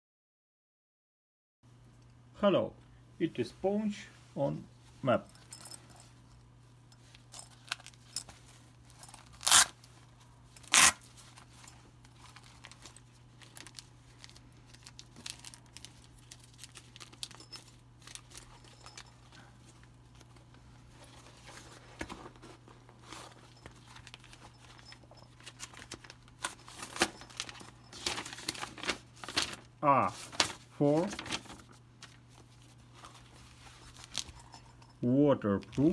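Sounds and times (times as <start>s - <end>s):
faint low hum: 1.7s - 35.9s
paper and plastic crinkling: 10.6s - 34.6s.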